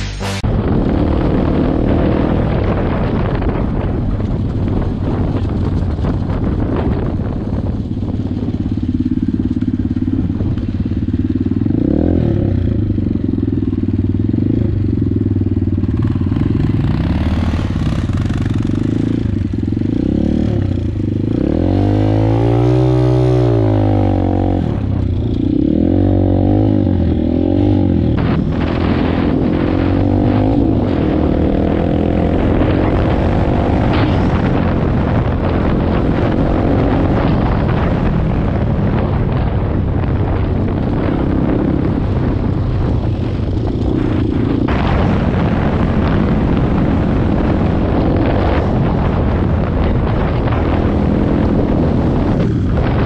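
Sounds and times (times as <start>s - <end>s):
dirt bike engine revving: 0.0s - 3.3s, 9.0s - 38.1s.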